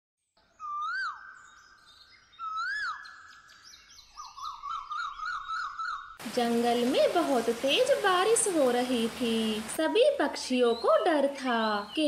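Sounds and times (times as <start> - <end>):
whistled bird-like chirps with echo: 0.4 - 6.2.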